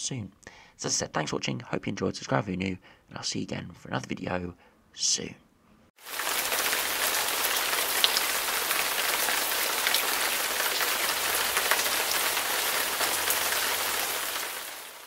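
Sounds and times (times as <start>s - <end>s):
steady rain falling: 6.0s - 15.0s.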